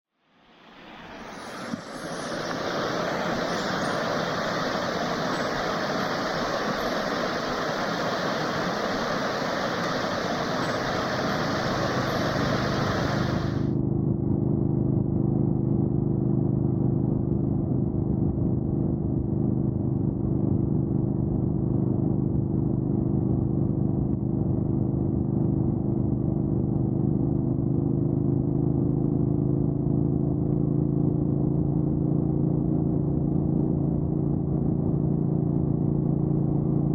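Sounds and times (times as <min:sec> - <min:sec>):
river water running over stones: 0:00.6 - 0:13.7.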